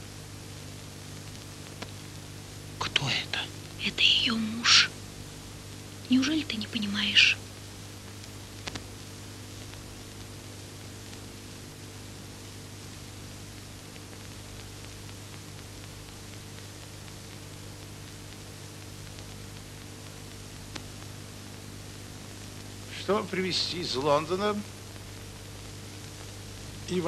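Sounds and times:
film soundtrack hiss and hum: 0.0s - 27.0s.

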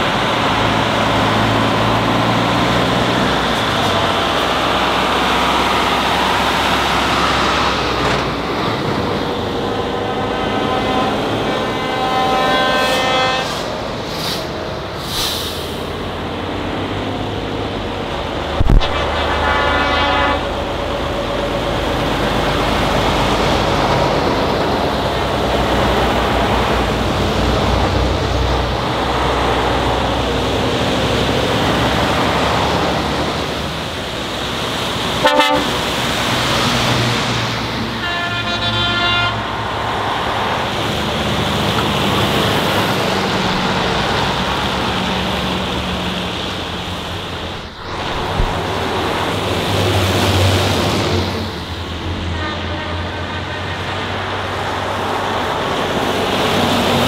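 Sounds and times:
trucks driving past: 0.0s - 57.0s
truck horn blasts: 9.6s - 14.5s, 18.6s - 21.6s, 35.2s - 36.0s, 37.9s - 39.6s, 52.3s - 53.9s.

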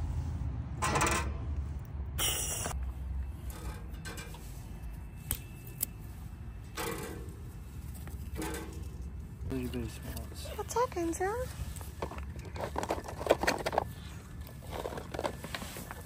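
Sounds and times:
handling and rustling: 3.2s - 16.0s.

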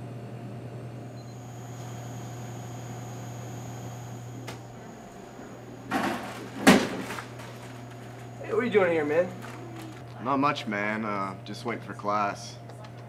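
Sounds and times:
vending machine humming: 0.0s - 13.0s
delivery flap knock: 5.9s - 7.4s.

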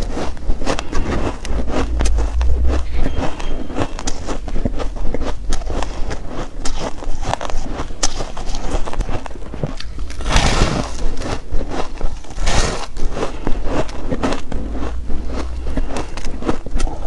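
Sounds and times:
chewing shaved ice crunching: 0.0s - 17.0s
loud ice crunches: 3.6s - 17.0s.

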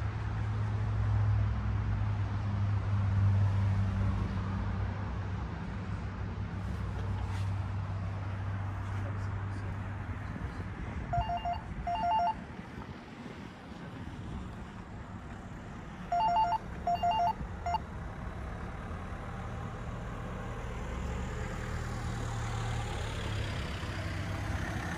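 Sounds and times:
telephone ringing with two-tone trill: 11.1s - 12.4s, 16.1s - 17.8s.

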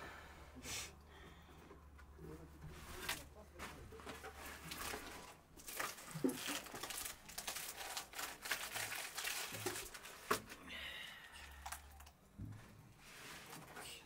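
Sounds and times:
flatbread rustling and tearing: 4.3s - 10.6s.

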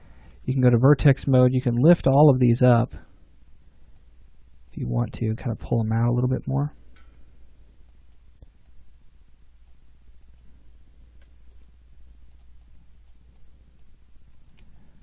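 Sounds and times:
steady low hum: 0.0s - 15.0s
computer mouse clicks: 9.6s - 10.5s, 11.2s - 14.8s.

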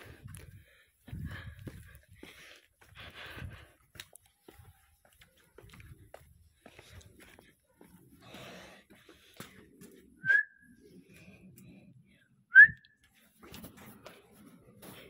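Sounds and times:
person whistling: 10.2s - 10.7s, 12.5s - 13.0s.

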